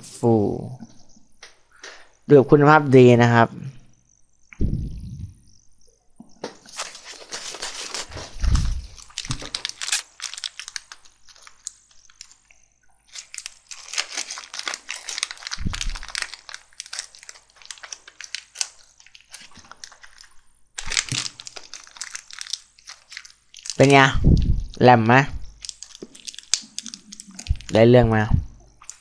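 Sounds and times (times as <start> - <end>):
dull low thumps: 4.6 - 5.4, 24.2 - 25.5, 27.5 - 28.6
crinkling and crunching: 6.3 - 29.0.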